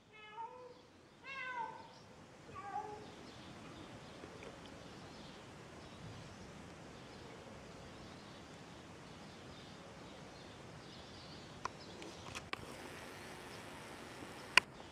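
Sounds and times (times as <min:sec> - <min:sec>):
faint background noise: 0:00.0 - 0:14.9
cat meowing: 0:00.1 - 0:03.1.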